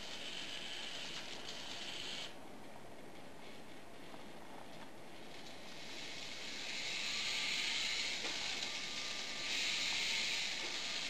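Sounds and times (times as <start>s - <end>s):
small gear motors whirring: 0.0s - 2.4s, 5.4s - 11.0s.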